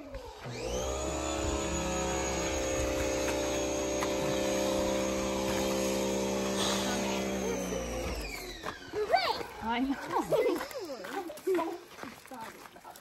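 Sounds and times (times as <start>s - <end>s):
pressure washer motor whine: 0.1s - 9.0s
water spray hissing: 2.9s - 8.0s.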